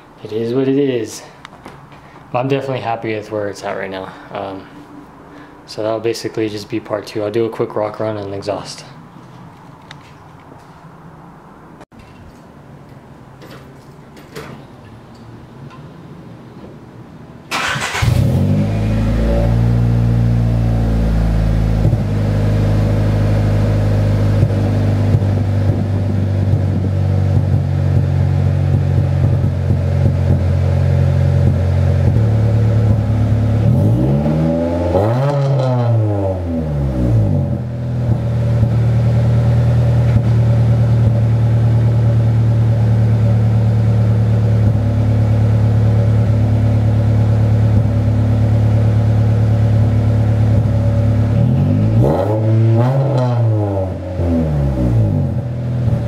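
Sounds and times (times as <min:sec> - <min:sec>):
engine cranking: 0:17.5 - 0:18.3
engine revving: 0:17.5 - 0:30.5, 0:31.1 - 0:41.4, 0:50.4 - 0:56.0
car engine idling: 0:17.5 - 0:33.8, 0:37.5 - 0:52.1.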